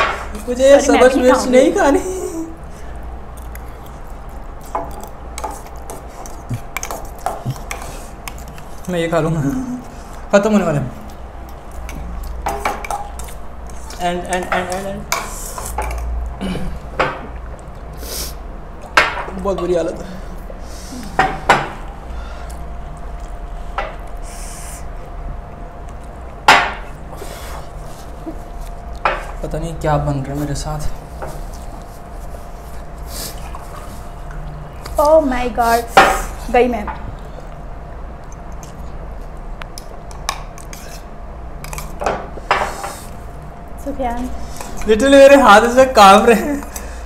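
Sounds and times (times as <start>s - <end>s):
faint room hum: 0.0s - 47.0s
hissing breath: 18.0s - 18.4s, 24.2s - 24.9s
fork scraping in noodle cup: 40.6s - 41.1s.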